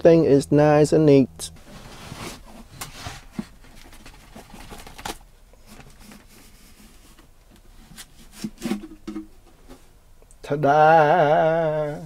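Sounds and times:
faint scraping and handling: 1.6 - 5.0, 5.6 - 10.0.

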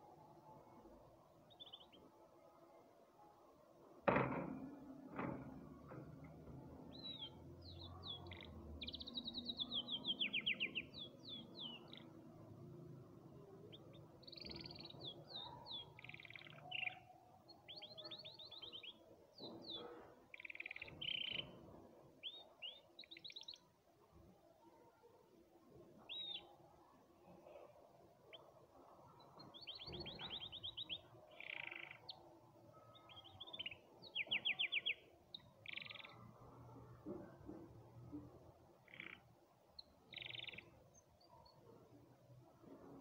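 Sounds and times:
canary singing trills and chirps: 1.5 - 2.1, 6.8 - 12.6, 13.6 - 23.7, 26.0 - 26.6, 28.3 - 36.7, 38.7 - 41.7.

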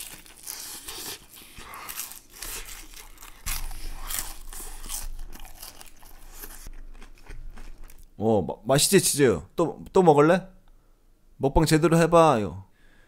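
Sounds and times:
person chewing wetly: 0.0 - 8.1.

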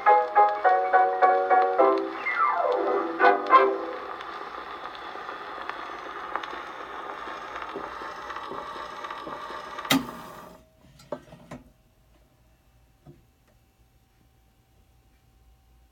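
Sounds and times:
dance orchestra on phonograph: 0.0 - 10.6
record surface hiss: 0.0 - 15.9.

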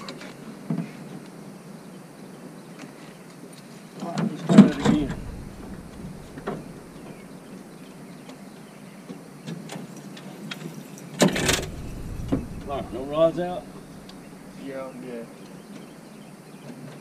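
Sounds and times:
rustling and knocking bursts: 4.6 - 7.7, 11.2 - 14.6.

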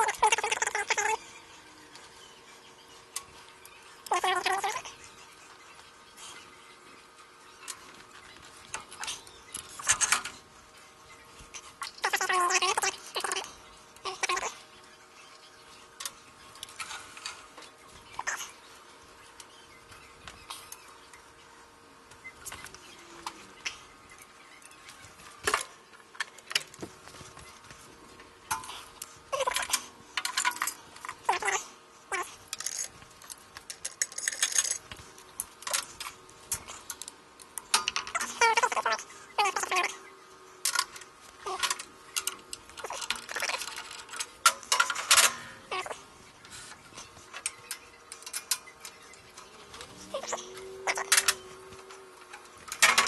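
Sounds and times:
metal tools clinking: 28.5 - 37.0, 40.6 - 45.9.

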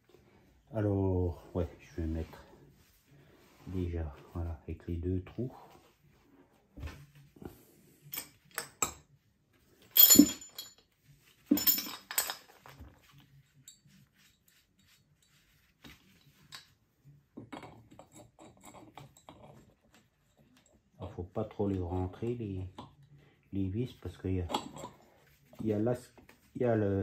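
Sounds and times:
metal parts clinking: 9.9 - 10.8, 11.5 - 12.8.

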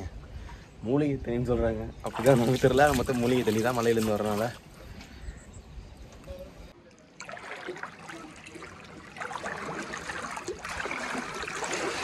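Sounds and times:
water flowing and splashing: 2.0 - 4.6, 6.8 - 12.0.

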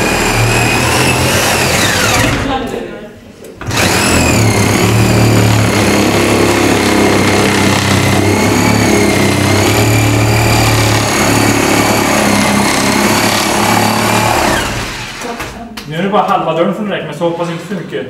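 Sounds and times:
power tool motor whining: 0.0 - 2.6, 3.6 - 15.2.

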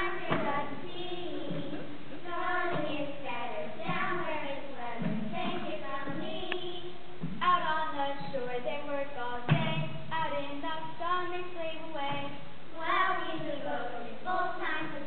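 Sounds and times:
children singing: 0.0 - 7.0, 12.8 - 15.0.

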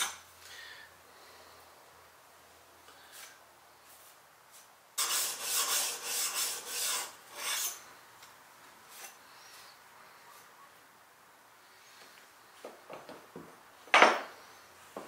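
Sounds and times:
blade rasping on sharpening stone: 5.0 - 7.8.

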